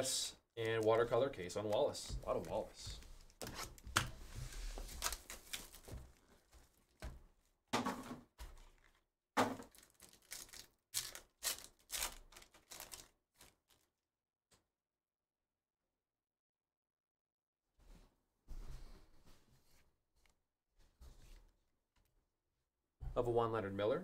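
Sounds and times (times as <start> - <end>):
cards being handled: 0.6 - 7.1
foil pack crinkling: 4.7 - 7.0, 8.4 - 9.0, 9.6 - 13.9.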